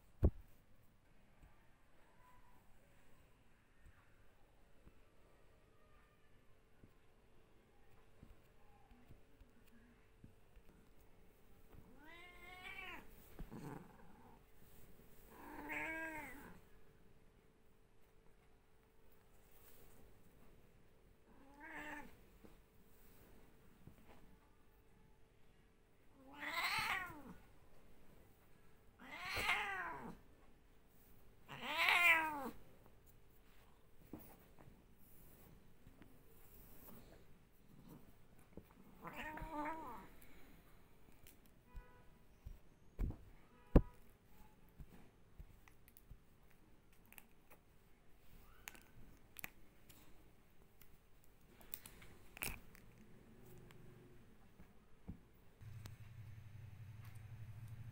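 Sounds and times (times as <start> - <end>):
cat meowing: 11.9 - 13.8, 15.3 - 16.6, 21.4 - 22.1, 26.2 - 27.4, 29.0 - 30.2, 31.5 - 32.6, 39.0 - 40.1.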